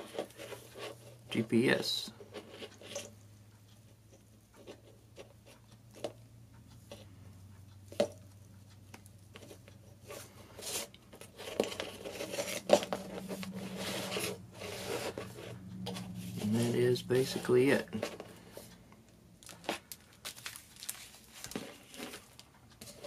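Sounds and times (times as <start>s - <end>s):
cables rustling over cardboard: 9.3s - 18.8s, 19.4s - 23.0s.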